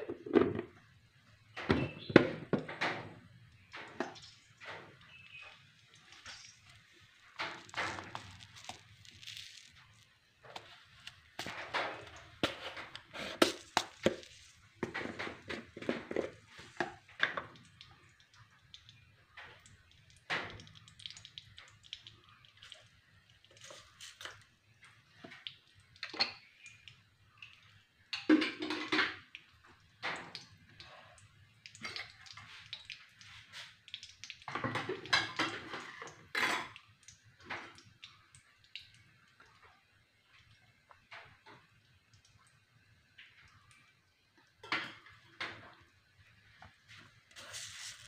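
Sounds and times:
metal kitchenware clattering: 0:28.2 - 0:29.2.

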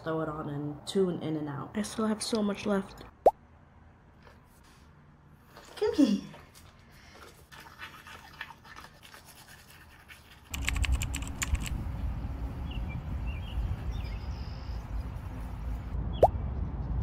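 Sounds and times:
toothbrush scratching teeth: 0:07.2 - 0:11.6
rustling clicks: 0:10.5 - 0:11.8
wind rumble on microphone: 0:10.9 - 0:17.0.

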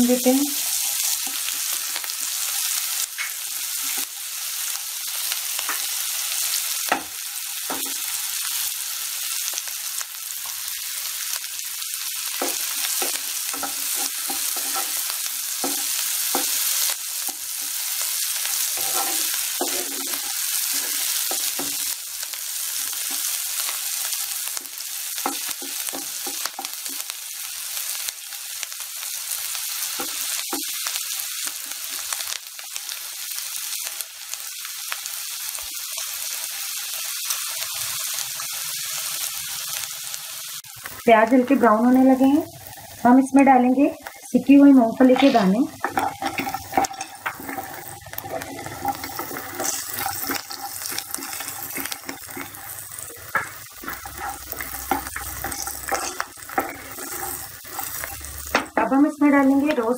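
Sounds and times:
vegetables sizzling in hot oil: 0:00.0 - 0:59.9
wooden spatula scraping pan: 0:12.4 - 0:16.6, 0:18.7 - 0:21.8, 0:45.0 - 0:58.8.

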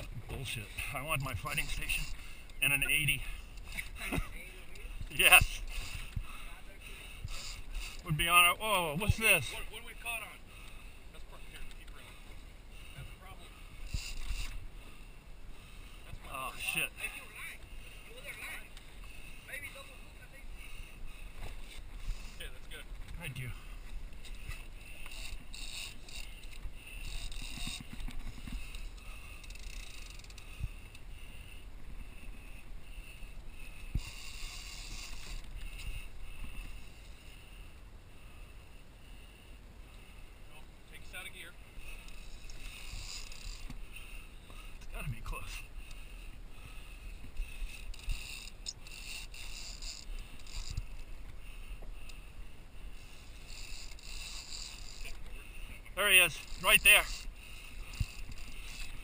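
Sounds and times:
fishing reel rapid clicking: 0:04.6 - 0:09.9, 0:13.7 - 0:15.0, 0:24.1 - 0:37.7, 0:41.2 - 0:59.0
fishing reel hissing: 0:04.6 - 0:20.0, 0:20.6 - 0:22.6, 0:23.5 - 0:59.0.

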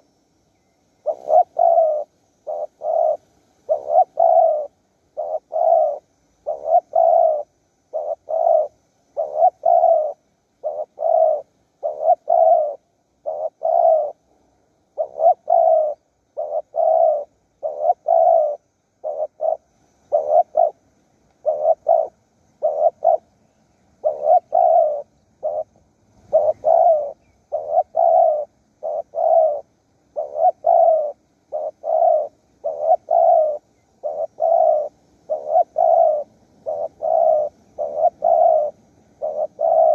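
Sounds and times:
dove cooing: 0:01.0 - 0:39.9.

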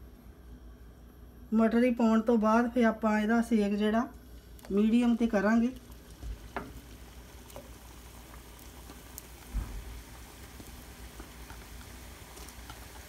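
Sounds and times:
dough sizzling in hot oil: 0:04.2 - 0:13.0.

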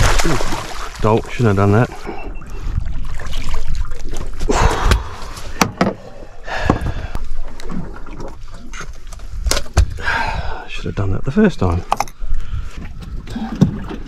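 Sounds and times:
knocks and thumps on boat deck: 0:05.0 - 0:06.0.

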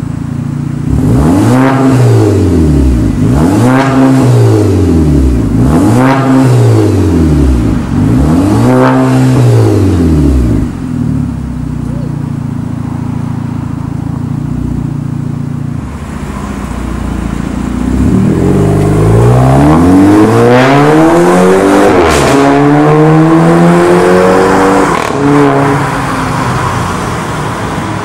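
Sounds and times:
car engine idling and accelerating: 0:00.0 - 0:28.0.

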